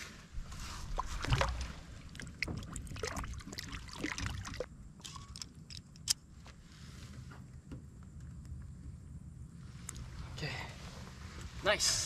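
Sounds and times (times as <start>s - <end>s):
water splashing: 0.7s - 4.7s
water dripping: 1.2s - 5.4s.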